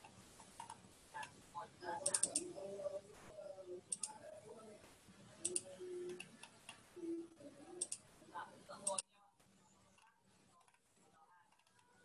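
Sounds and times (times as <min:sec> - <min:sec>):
computer mouse clicking: 0:00.0 - 0:01.3, 0:02.0 - 0:02.5, 0:03.9 - 0:04.2, 0:05.4 - 0:06.8, 0:07.8 - 0:08.0, 0:08.8 - 0:09.0, 0:10.0 - 0:10.8, 0:11.5 - 0:12.0.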